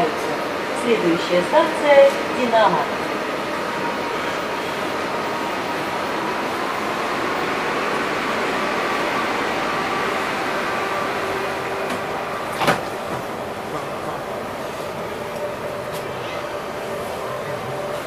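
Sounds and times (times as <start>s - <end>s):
steady train car hum: 0.0s - 18.0s
sliding doors shutting with thud: 11.8s - 13.3s.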